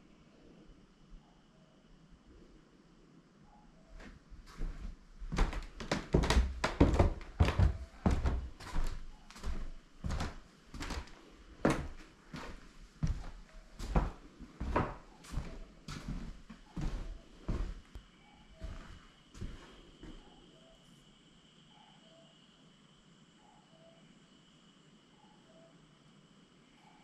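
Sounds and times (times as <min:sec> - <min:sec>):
footsteps on wooden floorboards: 0:04.0 - 0:18.0, 0:18.6 - 0:20.2.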